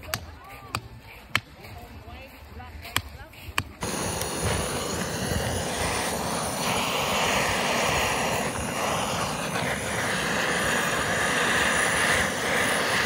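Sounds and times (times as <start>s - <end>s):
butane torch hissing: 3.8s - 13.0s.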